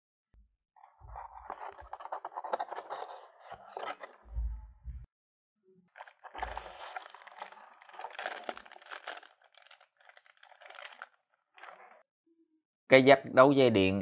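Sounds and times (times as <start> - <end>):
plastic bag crinkling: 6.0 - 12.0.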